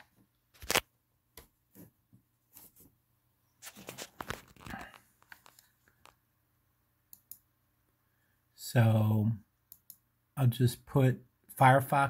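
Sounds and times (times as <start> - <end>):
faint clicks and taps: 3.8 - 6.2, 7.1 - 7.5.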